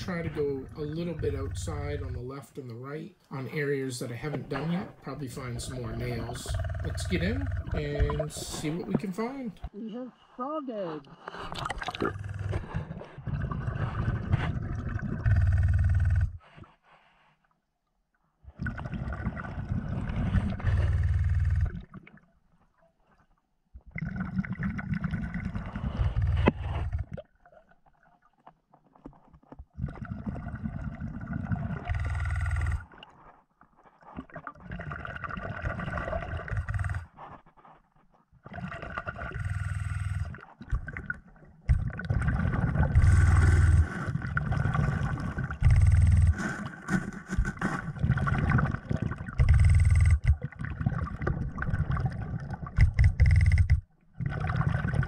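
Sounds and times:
diver breathing through regulator: 0:11.0 - 0:17.5, 0:25.6 - 0:27.1, 0:31.8 - 0:33.4, 0:39.2 - 0:40.4, 0:42.8 - 0:48.2, 0:49.4 - 0:50.3
rush of bubbles: 0:11.2 - 0:16.1, 0:18.5 - 0:22.2, 0:34.1 - 0:37.0, 0:38.4 - 0:55.0.

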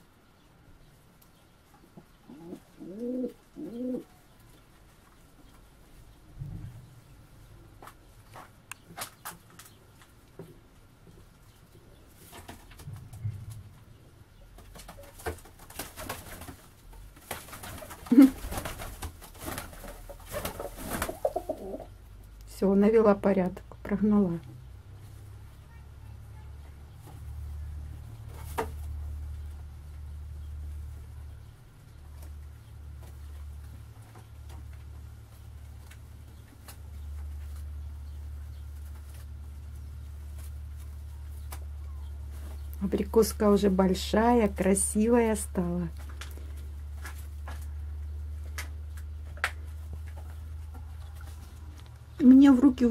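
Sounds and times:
pigeons scuffling: 0:01.4 - 0:22.2, 0:24.8 - 0:52.9
pigeons cooing: 0:02.2 - 0:04.3, 0:20.1 - 0:22.0
low steady hum: 0:09.8 - 0:15.6
wings flapping: 0:12.2 - 0:21.9.

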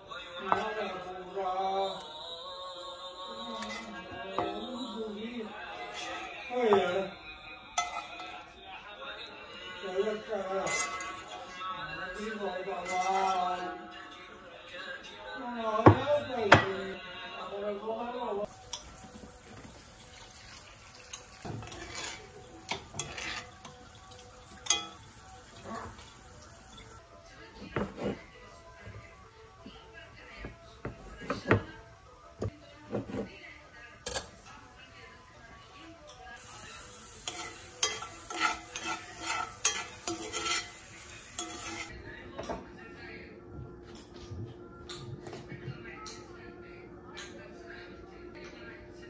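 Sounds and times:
spoon stirring wet food: 0:05.7 - 0:07.0, 0:07.6 - 0:08.6, 0:18.4 - 0:34.4, 0:36.1 - 0:41.9
spoon clinking against pan: 0:07.8 - 0:08.4, 0:20.4 - 0:27.0, 0:37.2 - 0:41.9
cabbage sizzling in a skillet: 0:18.5 - 0:27.0, 0:36.4 - 0:41.9.

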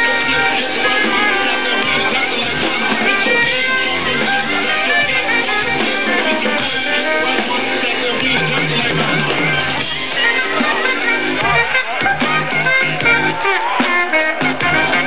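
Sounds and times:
loud live electronic music: 0:00.0 - 0:15.0.

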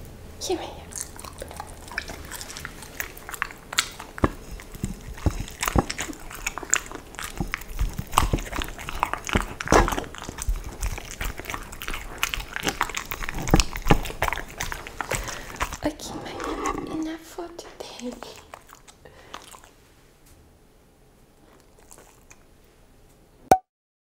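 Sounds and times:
dog crunching and chewing: 0:00.9 - 0:19.8, 0:21.4 - 0:22.6.

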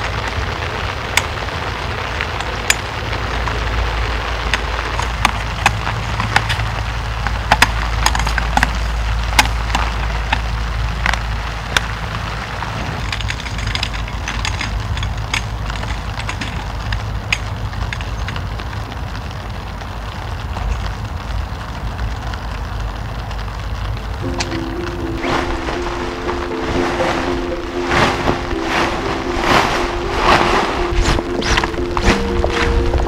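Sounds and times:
wood snapping and cracking: 0:04.4 - 0:12.0.

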